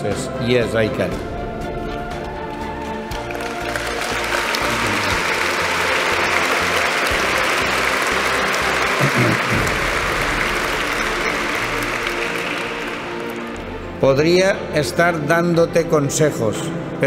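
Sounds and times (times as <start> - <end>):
crowd applauding: 2.5 - 14.1.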